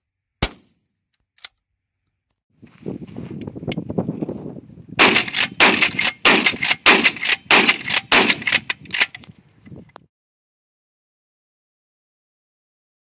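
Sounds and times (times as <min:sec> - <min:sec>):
shotgun blasts with echo: 0:05.0 - 0:08.7.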